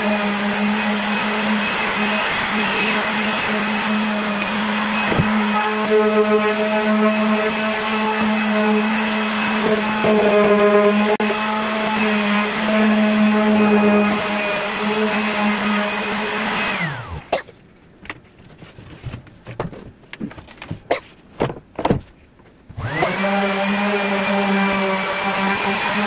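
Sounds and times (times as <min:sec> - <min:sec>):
electric sander running: 0:00.0 - 0:17.3, 0:22.8 - 0:26.0.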